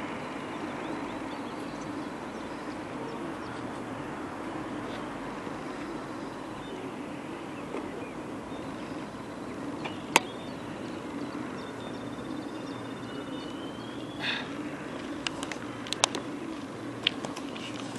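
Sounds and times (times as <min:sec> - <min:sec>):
low outdoor rumble: 0:00.0 - 0:17.9
faint bird chirps: 0:05.7 - 0:15.3.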